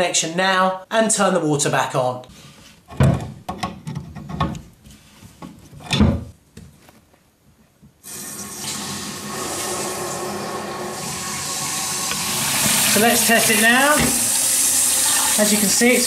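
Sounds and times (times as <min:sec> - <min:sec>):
water filling toilet cistern: 0:08.0 - 0:16.0.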